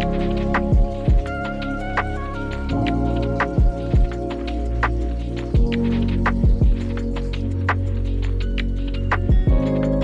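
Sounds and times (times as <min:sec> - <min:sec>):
deep kick drum: 0:00.0 - 0:01.4, 0:02.1 - 0:04.3, 0:04.9 - 0:07.0, 0:09.2 - 0:09.8.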